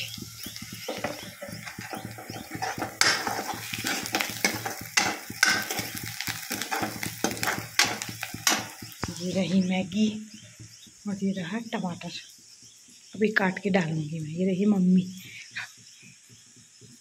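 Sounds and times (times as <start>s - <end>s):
onions sizzling in a pan: 0.0s - 17.0s
metal spoon scraping a pan: 0.8s - 8.8s.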